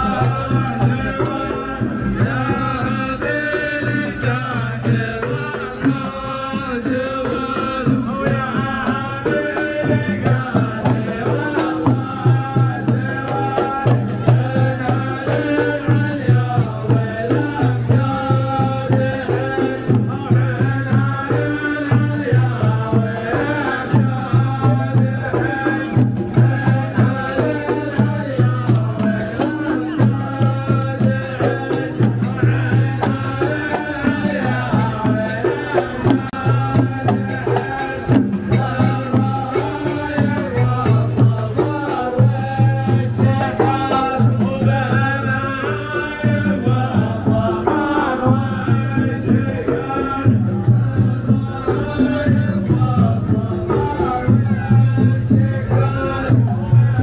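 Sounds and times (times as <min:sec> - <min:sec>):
frame drums beating: 0:00.0 - 0:57.0
men chanting in unison: 0:00.0 - 0:57.0.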